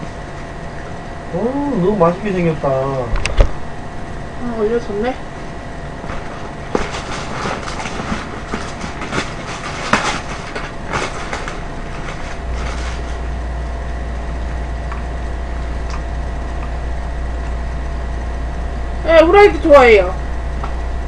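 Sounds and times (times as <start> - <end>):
low hum: 0.0 - 21.0
paper rustling and crinkling: 6.1 - 13.4.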